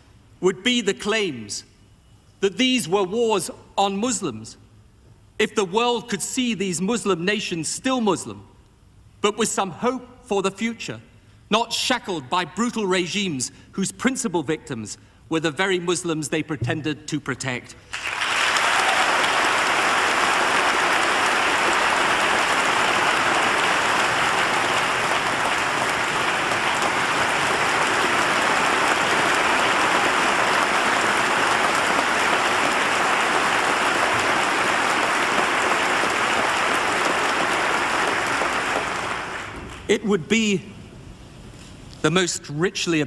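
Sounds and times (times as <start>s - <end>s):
audience applauding: 17.9s - 39.9s.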